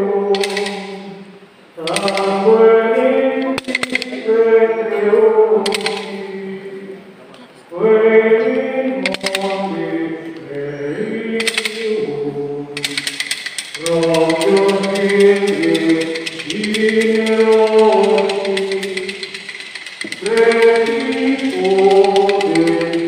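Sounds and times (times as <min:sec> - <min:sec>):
voices singing a hymn: 0:00.0 - 0:23.0
rapid clicking rattle: 0:00.4 - 0:00.9, 0:01.8 - 0:02.4, 0:03.6 - 0:04.2, 0:05.7 - 0:06.2, 0:09.0 - 0:09.6, 0:11.4 - 0:12.0, 0:12.8 - 0:23.0.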